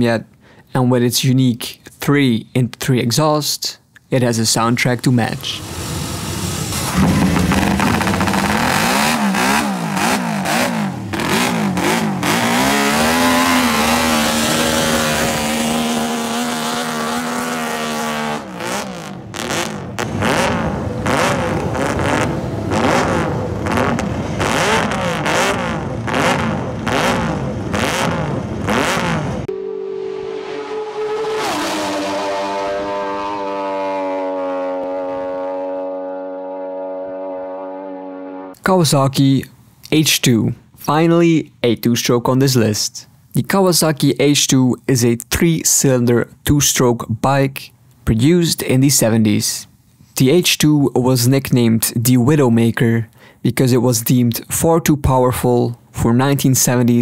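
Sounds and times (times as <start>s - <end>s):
race engine revving: 5.4s - 38.6s.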